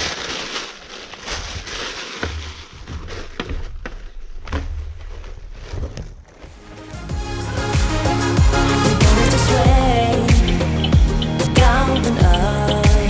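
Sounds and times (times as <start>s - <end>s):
plastic bag rustling: 0.0s - 6.8s.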